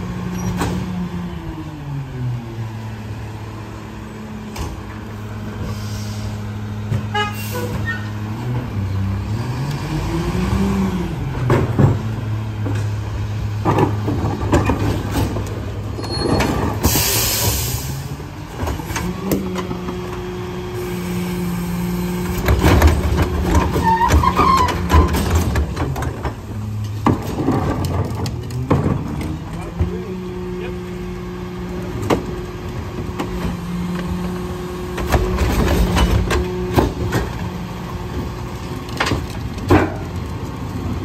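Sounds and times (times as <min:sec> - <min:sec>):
garbage truck diesel engine: 0:00.0 - 0:41.0
air brake hiss: 0:05.6 - 0:06.4, 0:16.8 - 0:18.1
cart tipper lifting trash cart: 0:10.6 - 0:20.2, 0:20.8 - 0:41.0.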